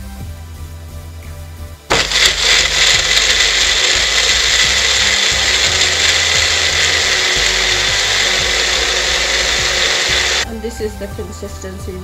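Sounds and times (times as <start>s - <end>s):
blender running: 1.9s - 10.5s.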